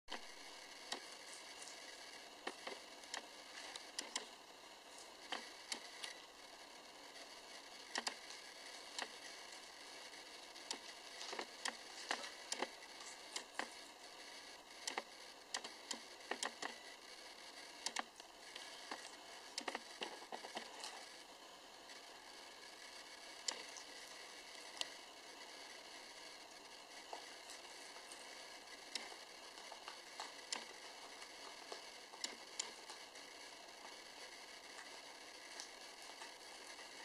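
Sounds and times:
guinea pig chewing lettuce: 0:27.0 - 0:37.0.

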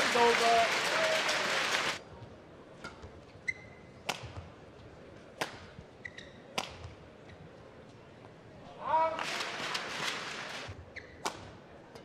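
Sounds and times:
crowd cheering and applauding: 0:00.0 - 0:02.0
shoes squeaking on court: 0:03.3 - 0:03.9, 0:06.0 - 0:07.5, 0:10.0 - 0:11.4
racket hitting shuttlecock: 0:04.0 - 0:04.5, 0:05.4 - 0:05.8, 0:06.5 - 0:07.0.

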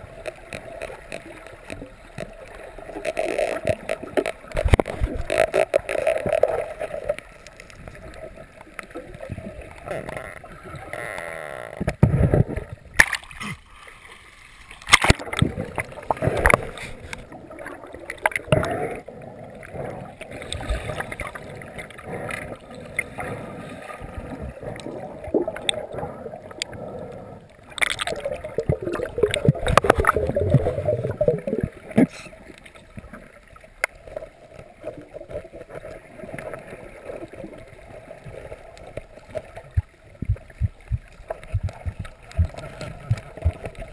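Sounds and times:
muffled underwater gurgling: 0:15.1 - 0:33.2, 0:34.5 - 0:43.9.

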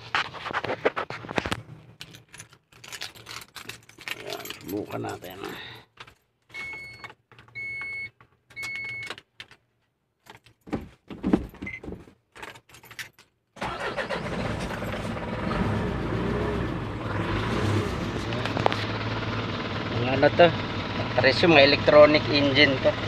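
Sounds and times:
clicks and rattles: 0:00.2 - 0:06.3
diesel engine running: 0:13.6 - 0:23.0.

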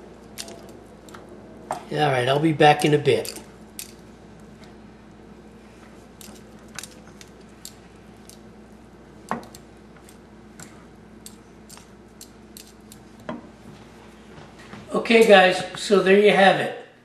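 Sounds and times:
steady low hum: 0:00.0 - 0:17.0
wooden spoon clicking and scraping: 0:00.2 - 0:01.2, 0:02.7 - 0:04.0, 0:11.2 - 0:13.3.

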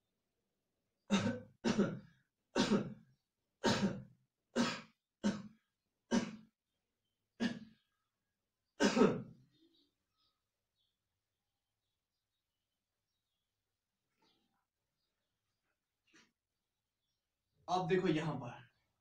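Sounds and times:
person coughing: 0:01.1 - 0:03.0, 0:03.6 - 0:06.5, 0:07.4 - 0:07.7, 0:08.8 - 0:09.3.

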